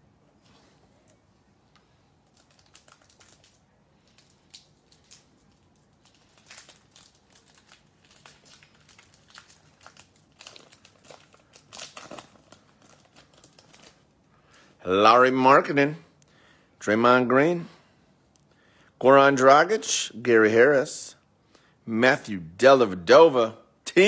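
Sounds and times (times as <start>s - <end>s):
wrapper crinkling and tearing: 2.2s - 14.2s.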